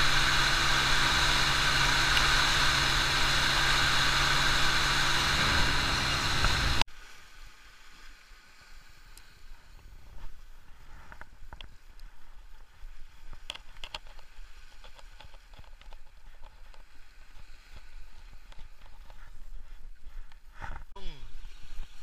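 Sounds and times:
sea waves washing against rocks: 0.0s - 6.8s
wind rumbling on microphone: 0.0s - 6.8s.

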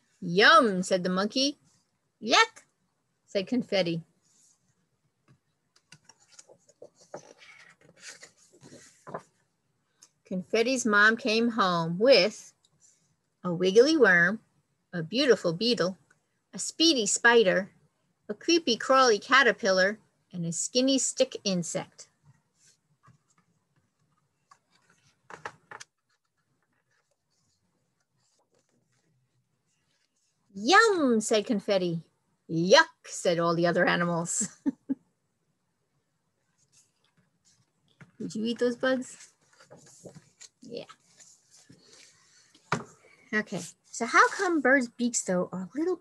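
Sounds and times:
paper page turning: 5.8s - 9.4s, 24.4s - 29.1s
picture-book page turning: 5.8s - 9.4s, 22.2s - 30.4s, 36.6s - 44.7s.

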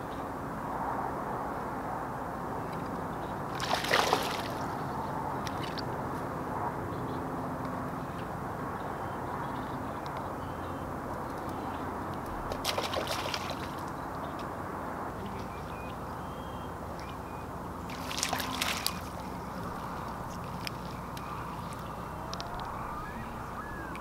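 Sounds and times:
water splashing: 3.5s - 4.8s, 12.3s - 14.0s, 17.8s - 21.8s
water lapping against rocks: 3.6s - 4.8s, 12.4s - 13.9s, 17.9s - 21.9s.

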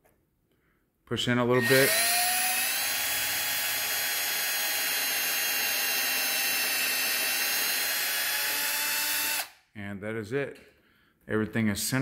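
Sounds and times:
cordless drill motor whine: 1.6s - 9.6s.

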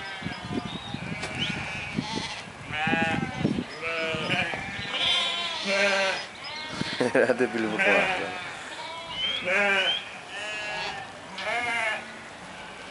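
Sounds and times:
sheep bleating: 0.0s - 12.8s.

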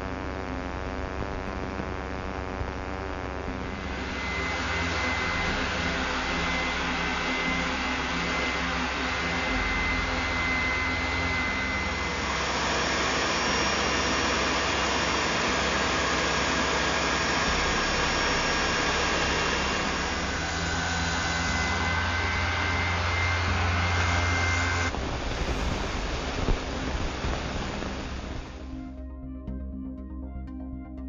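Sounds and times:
random-orbit sander on wood: 3.5s - 28.6s
spindle sander on wood: 3.6s - 24.9s
belt sander on wood: 3.7s - 24.9s.

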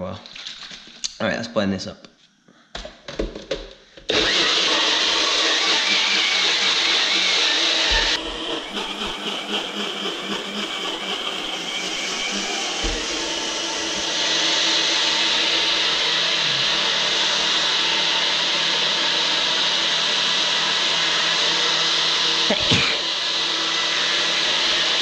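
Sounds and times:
blender motor running: 4.1s - 25.0s.

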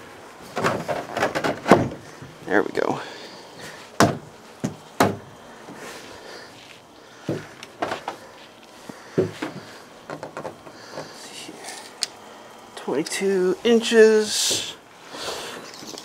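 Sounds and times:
footsteps on wooden deck: 3.6s - 11.2s
thuds on wooden bench: 4.0s - 5.3s, 9.1s - 11.1s.

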